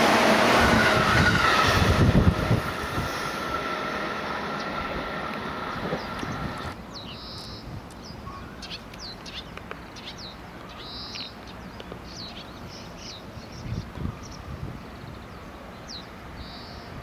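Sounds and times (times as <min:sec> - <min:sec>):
small birds chirping: 0:05.9 - 0:16.9.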